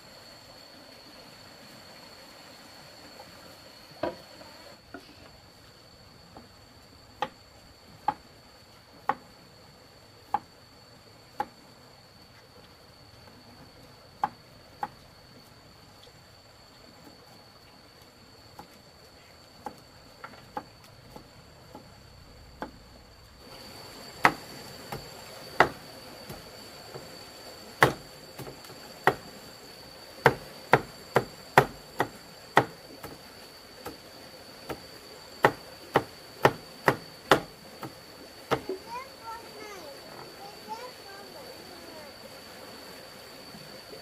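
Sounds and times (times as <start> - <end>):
high insect drone: 0.0 - 44.0
blade chopping wood: 24.2 - 27.1, 27.8 - 29.2, 30.2 - 33.2, 35.4 - 38.8.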